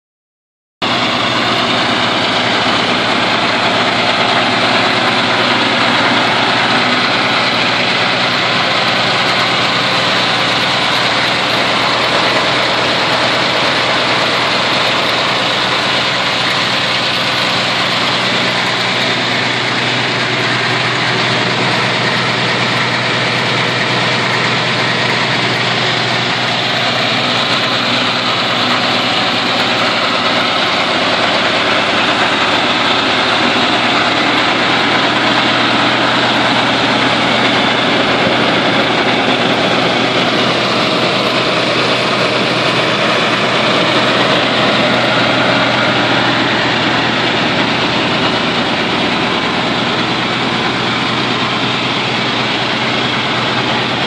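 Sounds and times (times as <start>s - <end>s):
diesel generator running: 0.8s - 54.0s.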